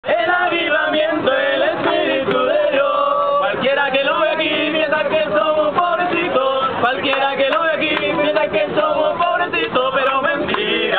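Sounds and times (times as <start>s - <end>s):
young men singing together: 0.0s - 10.9s.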